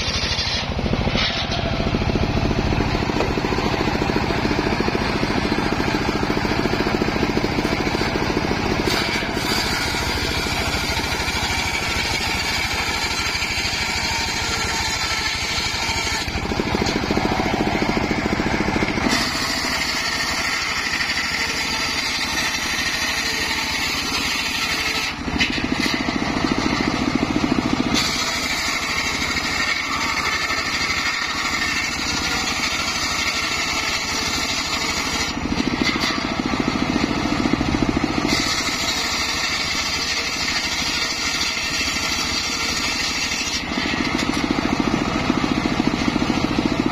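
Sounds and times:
circular saw ripping wood: 0.0s - 46.9s
engine running: 0.0s - 46.9s.

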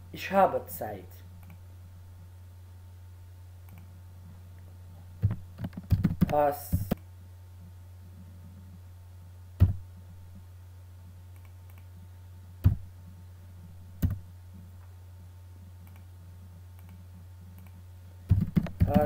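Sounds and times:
steady low hum: 0.0s - 19.0s
computer mouse clicks: 1.4s - 1.6s, 3.6s - 3.9s, 11.3s - 11.9s, 15.8s - 16.1s, 16.8s - 17.0s, 17.6s - 19.0s.

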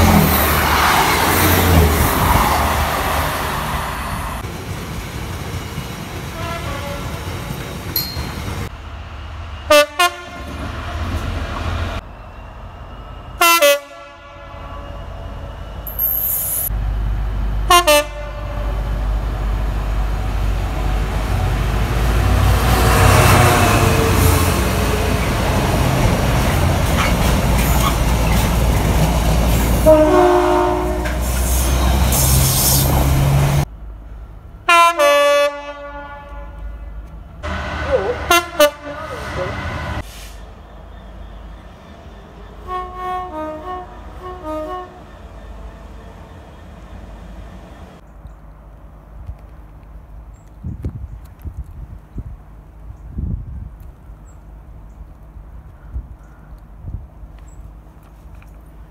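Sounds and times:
freight train rumbling past: 0.0s - 49.2s
train horn blasts: 6.4s - 7.2s, 9.7s - 11.0s, 13.4s - 15.3s, 17.7s - 19.0s, 29.8s - 31.3s, 34.7s - 40.0s, 42.6s - 45.1s.

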